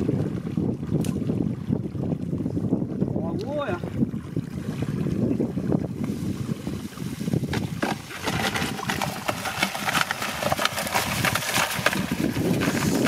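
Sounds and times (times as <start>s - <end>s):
fish flapping and slapping: 7.2s - 13.0s.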